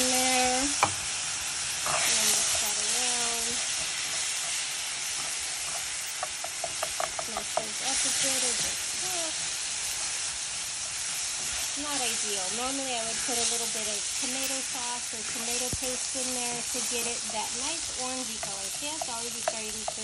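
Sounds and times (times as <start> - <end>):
food sizzling in oil: 0.0 - 20.0
utensil clicking against pot: 5.2 - 7.8, 16.5 - 20.0.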